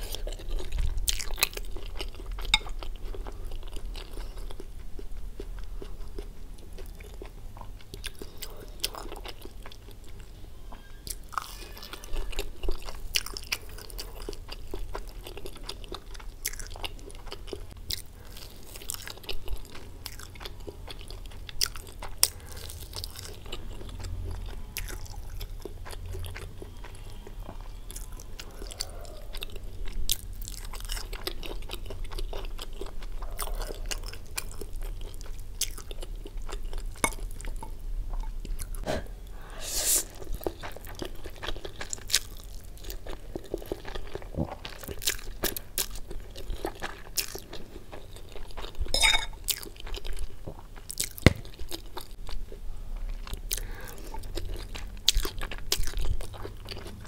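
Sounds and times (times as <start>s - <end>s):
crunchy biting and chewing: 10.8s - 37.7s, 40.0s - 52.4s, 53.0s - 57.0s.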